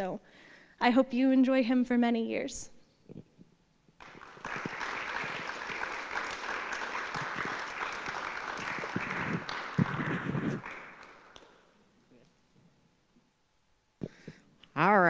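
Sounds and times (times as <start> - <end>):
audience applauding: 4.0 - 11.7.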